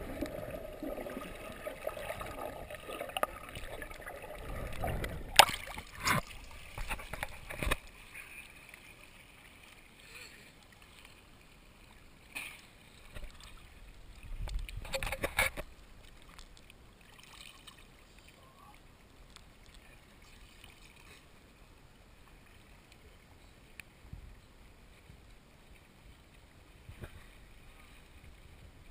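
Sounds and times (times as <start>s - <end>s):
faint wash of water: 0.0s - 28.9s
water splashing against camera housing: 1.9s - 7.9s, 14.4s - 15.7s.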